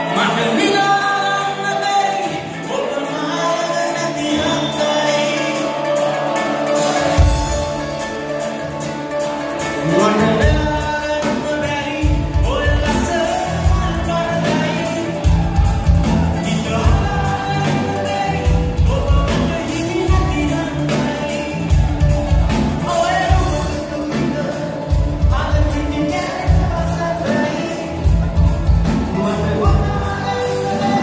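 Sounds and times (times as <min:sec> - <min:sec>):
man singing: 0:00.0 - 0:08.6, 0:09.6 - 0:31.0
live band playing pop: 0:00.0 - 0:31.0.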